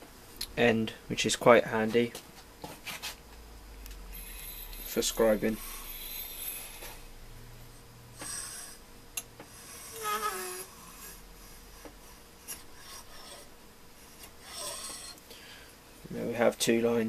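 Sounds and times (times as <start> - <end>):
scriber scratching metal tube: 4.2 - 7.0.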